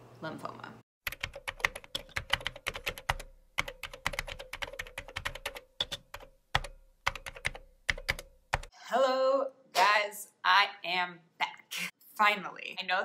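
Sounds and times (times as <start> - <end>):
keyboard typing clicks: 1.1 - 8.7.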